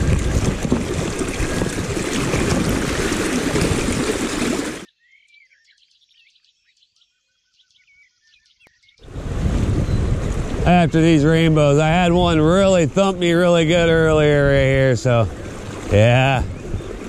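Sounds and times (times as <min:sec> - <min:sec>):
river water rushing and splashing: 0:00.0 - 0:04.9, 0:09.1 - 0:17.0.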